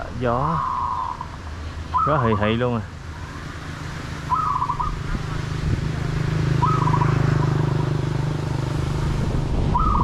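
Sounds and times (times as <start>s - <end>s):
trilled bird chirp: 0.4s - 2.6s, 4.2s - 5.1s, 6.5s - 8.7s, 9.7s - 10.0s.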